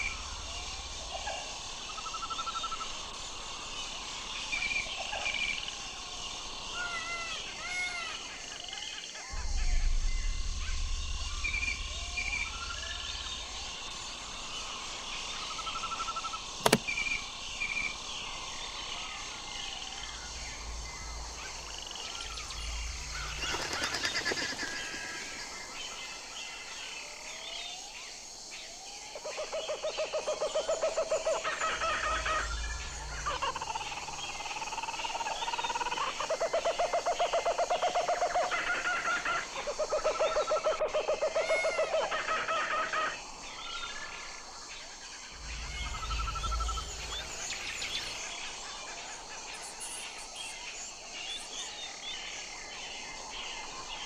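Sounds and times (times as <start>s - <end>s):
small birds chirping: 0.0s - 40.5s, 42.9s - 54.0s
sharp click: 16.6s - 17.0s
rapid pulsing animal calls: 19.3s - 26.9s, 29.2s - 44.0s, 45.2s - 50.0s.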